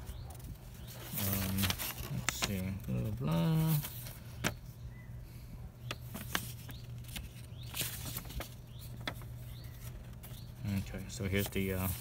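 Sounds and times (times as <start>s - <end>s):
paper pages rustling: 0.0s - 4.6s, 5.9s - 12.0s
low steady hum: 0.0s - 12.0s.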